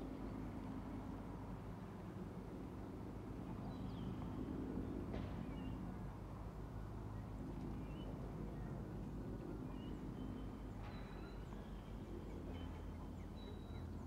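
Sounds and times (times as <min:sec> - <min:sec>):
distant jet airliner rumble: 0:00.0 - 0:14.0
small birds chirping: 0:07.1 - 0:14.0.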